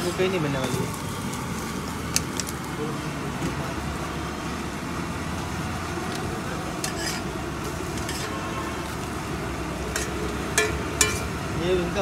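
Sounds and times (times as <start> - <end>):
omelette sizzling in a pan: 0.0 - 12.0
metal spatula scraping a pan: 6.8 - 9.0, 9.9 - 11.4.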